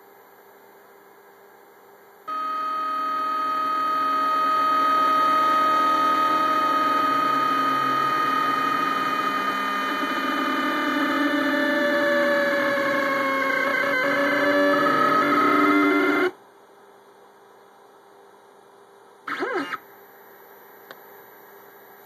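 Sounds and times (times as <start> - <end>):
stepper motors whining: 2.3 - 16.4, 19.3 - 19.8.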